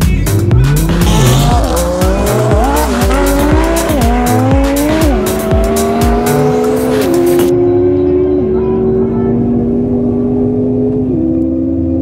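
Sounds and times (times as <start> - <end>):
background music: 0.0 - 10.6
race car engine accelerating: 0.3 - 12.0.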